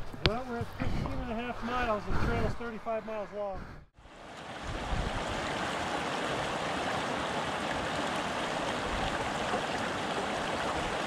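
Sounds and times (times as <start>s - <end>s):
creek rushing over rocks: 4.0s - 11.0s.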